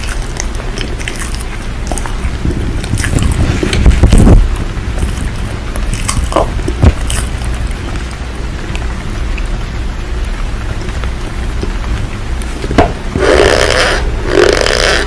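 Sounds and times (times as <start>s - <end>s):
crunching: 0.0s - 9.5s
steady rain: 1.7s - 12.6s.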